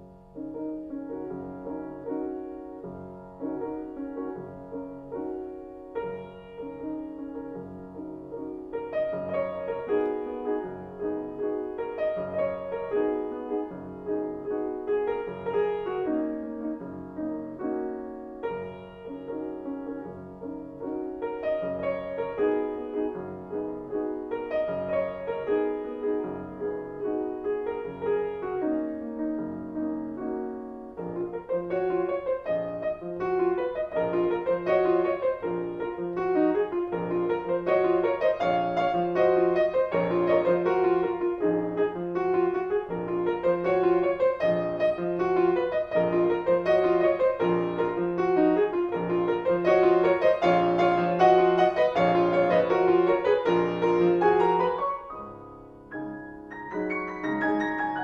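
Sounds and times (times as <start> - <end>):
solo piano dance piece: 0.0 - 58.0.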